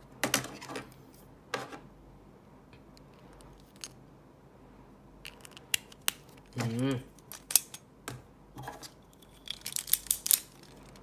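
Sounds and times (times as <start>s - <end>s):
plastic parts clicking and clattering: 5.3s - 7.8s, 8.6s - 11.0s.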